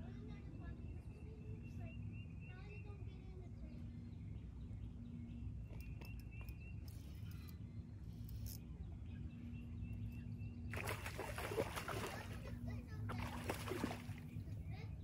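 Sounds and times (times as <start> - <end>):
faint bird chirps: 0.2 - 12.3
fish splashing at surface: 10.7 - 12.5, 13.1 - 14.3.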